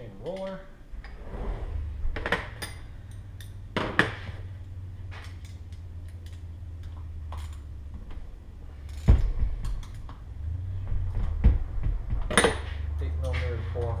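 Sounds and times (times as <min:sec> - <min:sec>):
steady low hum: 0:00.0 - 0:14.0
metal parts and tools clinking: 0:02.2 - 0:08.1, 0:08.7 - 0:10.3, 0:12.3 - 0:14.0.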